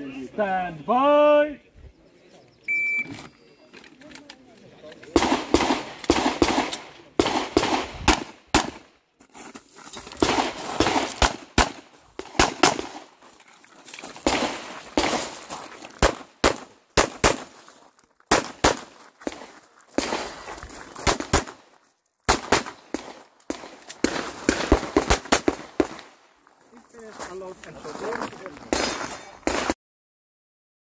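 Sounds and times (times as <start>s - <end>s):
pistol shots: 5.2s - 8.9s, 10.2s - 13.1s, 14.2s - 15.4s, 16.0s - 17.5s, 18.3s - 19.4s, 22.3s - 26.1s.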